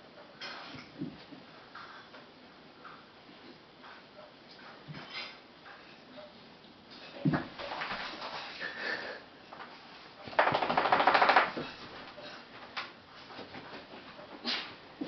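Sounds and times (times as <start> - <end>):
puppy knocking and scuffling: 10.3 - 12.0.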